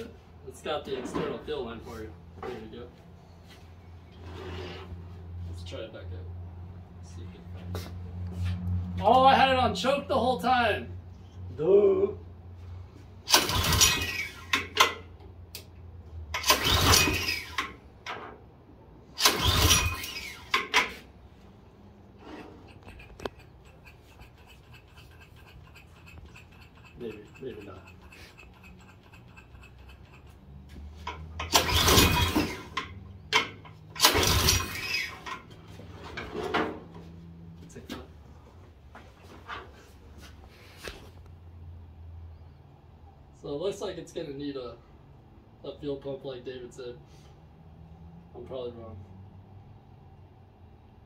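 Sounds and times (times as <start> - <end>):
engine cranking whirr: 13.2 - 15.1, 16.2 - 18.2, 19.0 - 21.2, 22.1 - 36.4
recoil rope handle clacking: 22.7 - 31.7.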